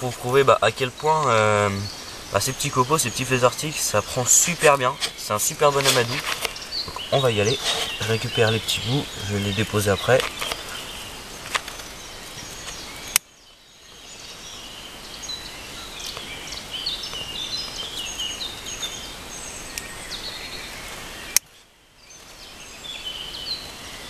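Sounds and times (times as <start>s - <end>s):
rustle of wood shavings: 0.0s - 13.1s
birds chirping: 0.0s - 24.0s
steady outdoor noise: 0.0s - 24.0s.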